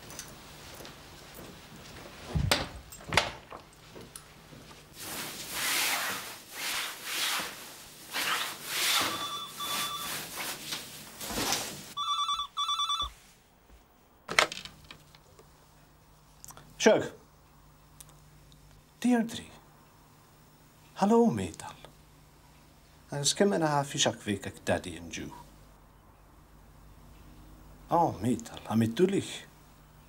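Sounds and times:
telephone ringing: 9.0 - 10.2, 12.0 - 13.2.

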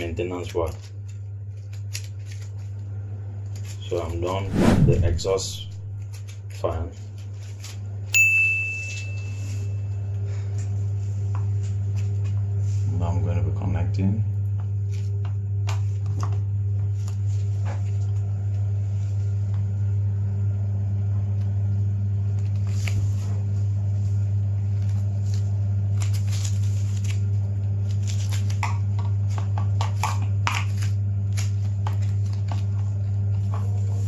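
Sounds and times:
loud steady low hum: 4.4 - 6.5.

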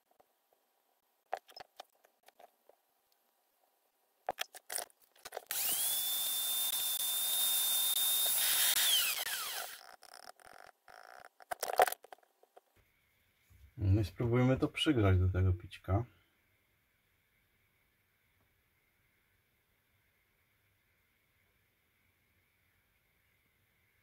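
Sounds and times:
rotary tool whining: 5.3 - 11.5.

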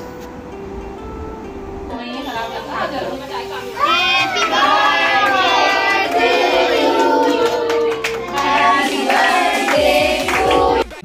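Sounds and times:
group singing: 3.8 - 11.0
hand-clapping: 4.8 - 11.0.

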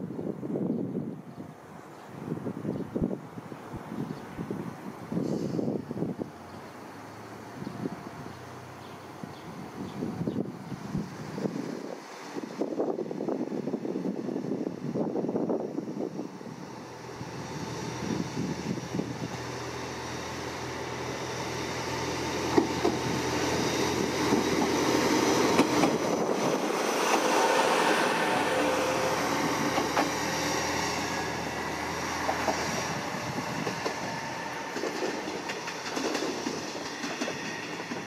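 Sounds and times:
diesel railcar engine running: 3.7 - 38.0
train wheels clicking over rail joints: 22.3 - 28.0, 29.5 - 30.3, 33.5 - 38.0.

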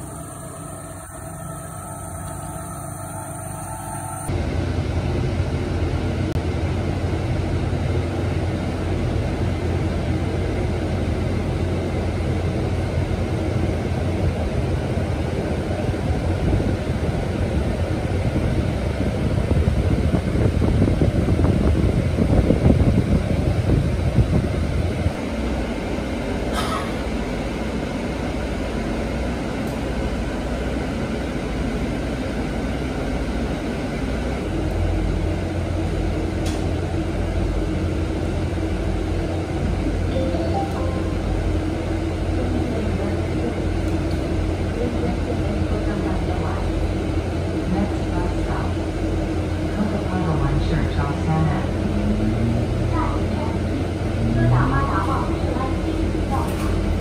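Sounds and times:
brief high-pitched sound: 40.1 - 41.7.

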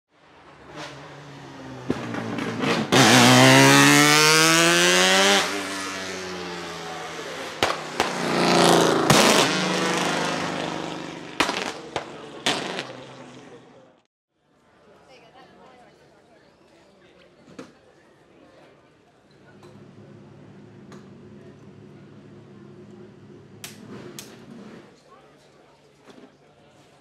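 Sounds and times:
race car engine accelerating: 0.4 - 13.6
sharp exhaust cracks: 7.5 - 13.3.

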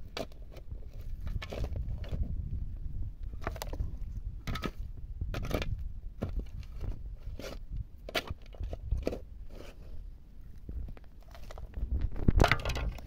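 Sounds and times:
shovel crunching into stony soil: 4.4 - 10.0.

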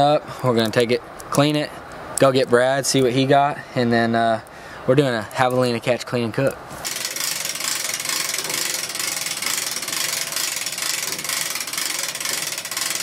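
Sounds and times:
hand winch ratcheting: 6.8 - 13.0.

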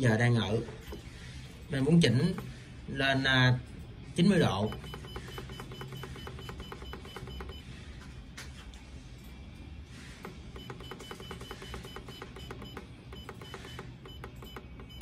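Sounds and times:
temperature controller short beeps: 10.6 - 15.0.

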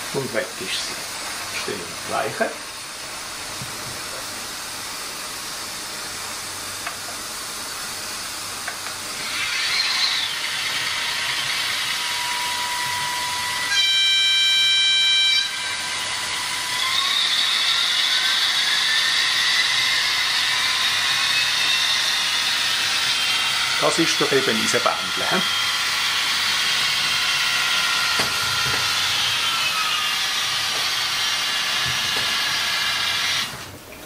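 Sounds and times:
model train whine rising: 9.1 - 33.7
model train horn: 13.7 - 15.6.

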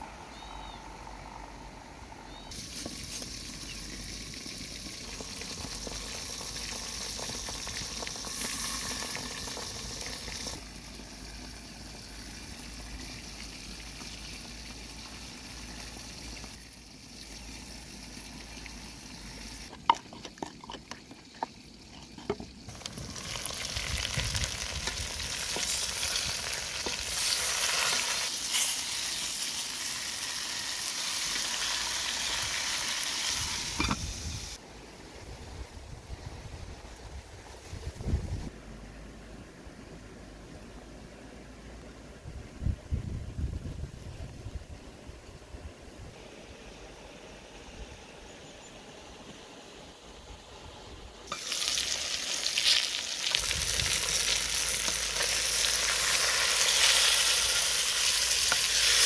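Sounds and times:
food hissing in a pot: 2.5 - 12.6, 22.7 - 34.6, 51.3 - 59.0.

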